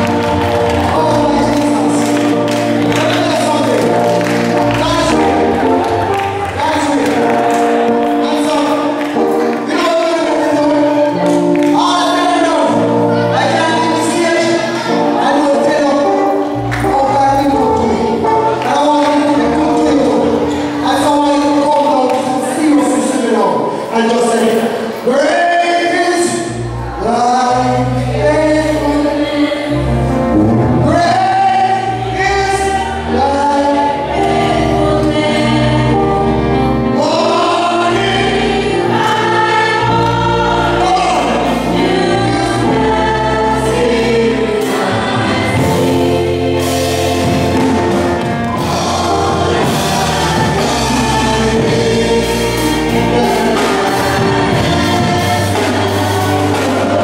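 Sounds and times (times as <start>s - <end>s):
held bass notes: 0.0s - 23.2s, 26.2s - 57.0s
man singing lead: 0.0s - 57.0s
women backing vocals: 37.4s - 57.0s.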